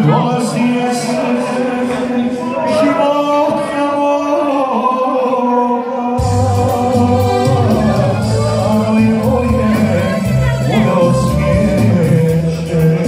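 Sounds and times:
person singing: 0.0s - 13.0s
backing chords: 6.2s - 12.5s
bass and beat: 6.2s - 13.0s.

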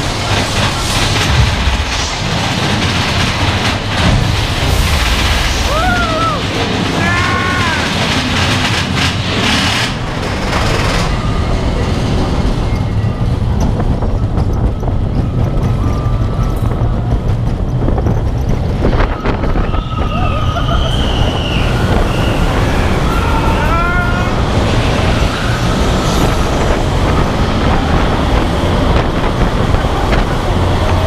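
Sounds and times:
roller coaster cars rattling: 0.0s - 31.0s
wind buffeting microphone: 0.0s - 31.0s
riders screaming: 5.5s - 8.4s, 19.1s - 25.7s.

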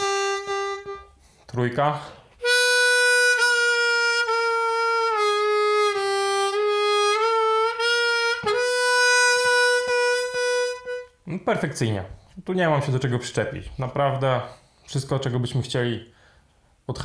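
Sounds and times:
harmonica bending a long note: 0.0s - 1.4s, 2.4s - 11.2s.

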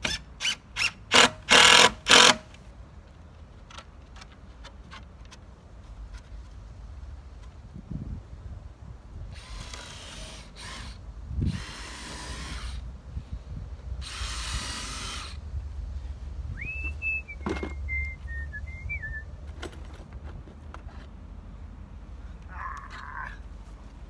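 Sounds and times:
cordless drill driving screws: 0.0s - 2.4s, 9.4s - 12.9s, 14.0s - 15.4s
person whistling: 16.6s - 19.3s.

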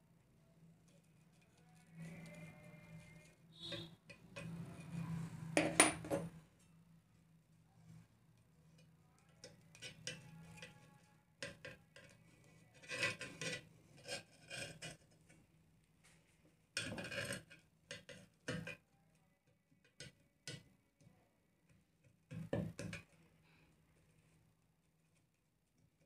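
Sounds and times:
rubbing and scraping: 12.1s - 15.3s.

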